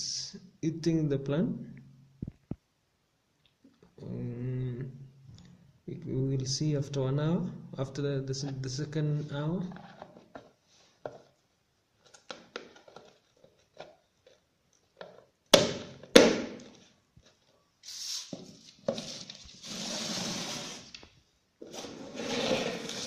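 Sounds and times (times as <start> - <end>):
container and paper scraping: 17.9 - 21.0, 21.6 - 23.0.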